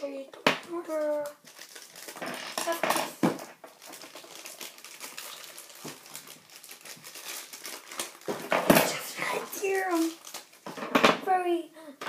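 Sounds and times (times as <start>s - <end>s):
plastic packaging crinkling: 0.9s - 10.7s.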